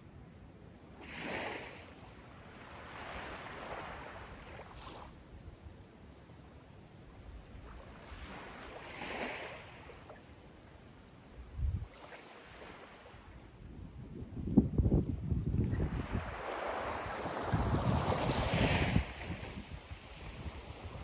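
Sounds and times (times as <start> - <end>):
small waves lapping on shore: 0.9 - 5.6, 7.2 - 13.5, 15.7 - 21.0.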